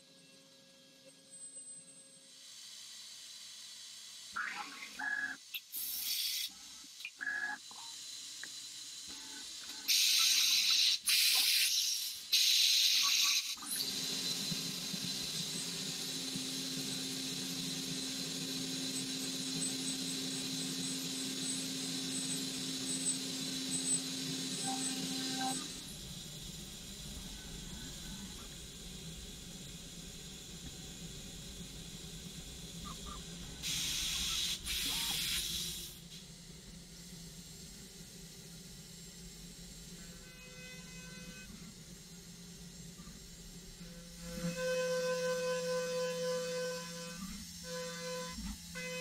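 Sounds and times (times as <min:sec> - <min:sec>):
milling spindle humming: 0:13.8 - 0:33.6
short machine tones: 0:22.2 - 0:25.8
coolant spray hissing: 0:33.6 - 0:36.0.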